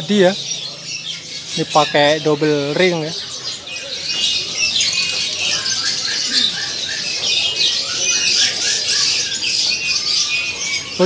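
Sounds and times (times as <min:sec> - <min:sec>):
songbirds chirping and twittering: 0:00.0 - 0:11.0.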